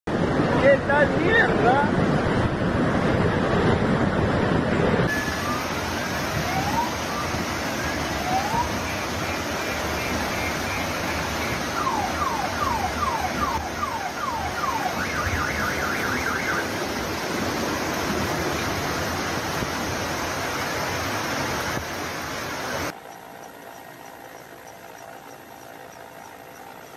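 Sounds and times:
floodwater rushing: 0.1 - 23.0
car alarm chirping: 6.6 - 16.8.

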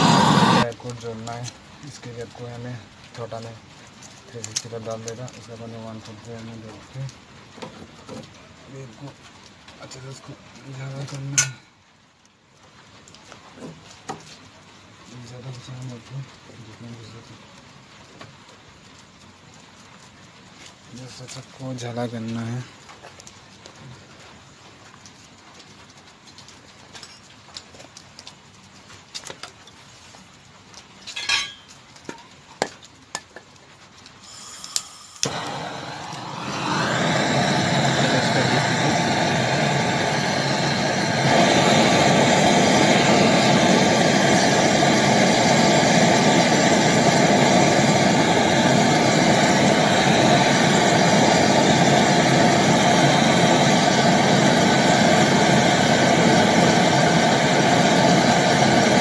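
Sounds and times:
gas torch flame hissing: 0.0 - 3.6, 9.8 - 11.6, 34.2 - 59.0.

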